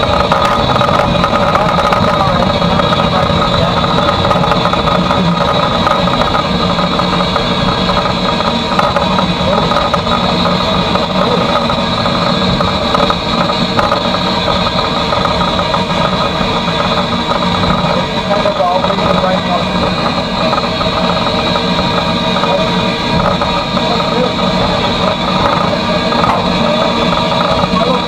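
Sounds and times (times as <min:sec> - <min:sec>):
steam locomotive running: 0:00.0 - 0:28.0.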